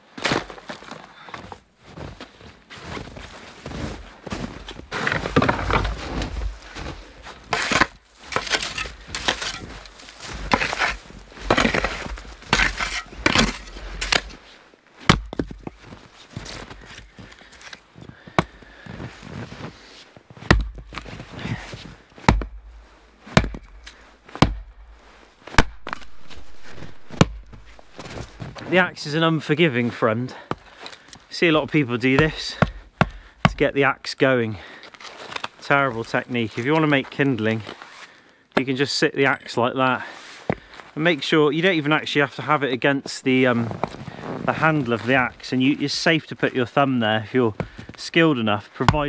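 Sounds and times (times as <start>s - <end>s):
footsteps crunching in snow: 0.1s - 33.7s, 34.5s - 38.2s, 43.1s - 48.9s
axe splitting wood: 5.0s - 6.0s, 7.5s - 14.4s, 15.1s - 15.7s, 20.5s - 21.0s, 22.2s - 24.8s, 25.5s - 27.6s, 32.2s - 33.6s.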